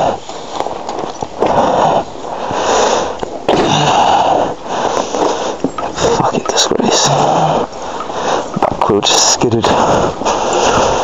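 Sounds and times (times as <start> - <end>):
person breathing hard: 1.4 - 8.8, 9.6 - 11.0.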